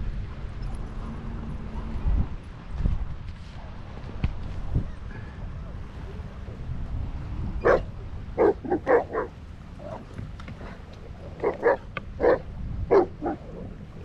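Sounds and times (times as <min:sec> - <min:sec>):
dog barking: 0:07.6 - 0:10.0, 0:11.4 - 0:13.5.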